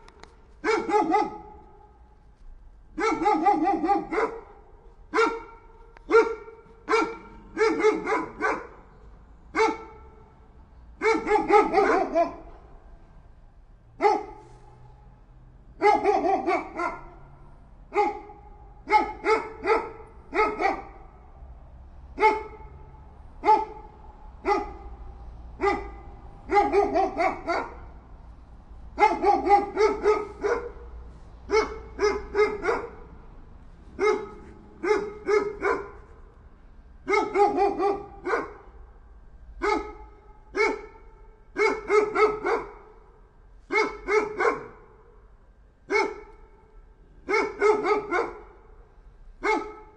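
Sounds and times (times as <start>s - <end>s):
dog barking: 0.6s - 2.0s, 2.9s - 10.3s, 11.0s - 12.6s, 14.0s - 14.8s, 15.8s - 21.2s, 22.2s - 25.0s, 25.6s - 28.0s, 29.0s - 33.1s, 33.9s - 36.2s, 37.0s - 38.8s, 39.6s - 45.1s, 45.9s - 46.6s, 47.2s - 48.7s, 49.4s - 49.9s.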